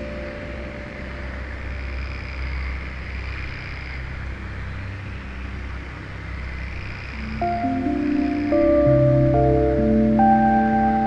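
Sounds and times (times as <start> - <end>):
faint high insect trill: 0.0 - 11.0
low wind rumble: 0.0 - 11.0
steady rainforest hiss: 0.0 - 11.0.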